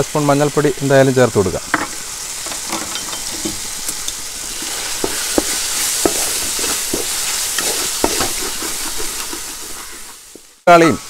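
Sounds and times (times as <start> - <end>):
vegetables sizzling in oil: 0.0 - 11.0
spatula scraping metal pan: 4.5 - 10.5.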